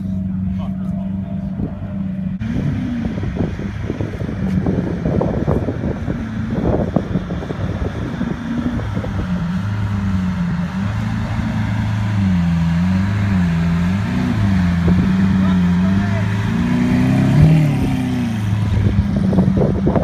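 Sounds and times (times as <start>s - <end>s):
car engine at low revs: 0.0s - 20.0s
wind buffeting microphone: 1.4s - 12.4s, 13.9s - 15.4s, 16.2s - 20.0s.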